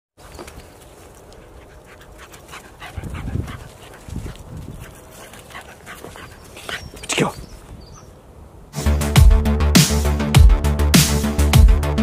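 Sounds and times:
dog panting: 0:01.2 - 0:08.1.

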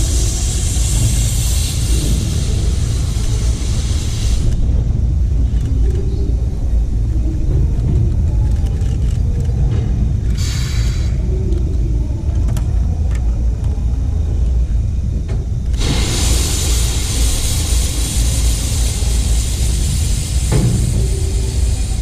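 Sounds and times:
loud steam hiss: 0:00.0 - 0:05.4, 0:10.3 - 0:11.4, 0:15.7 - 0:22.0
steam locomotive rumble: 0:00.0 - 0:22.0.

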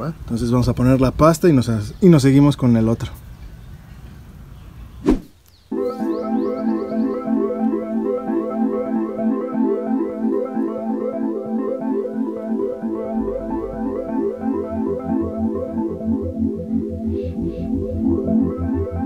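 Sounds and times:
keyboard and synthesizer tune: 0:05.7 - 0:19.0
low bass pulse: 0:12.3 - 0:19.0.

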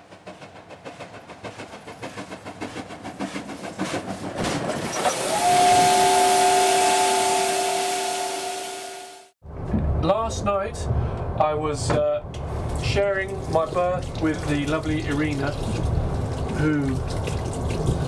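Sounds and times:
steam locomotive chuffing: 0:00.0 - 0:09.3
steam hissing: 0:05.0 - 0:09.3
steam whistle chord: 0:05.1 - 0:09.4.

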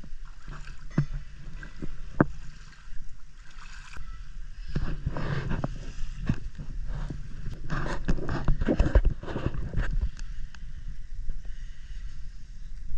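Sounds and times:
steady low rumble: 0:04.0 - 0:12.9.

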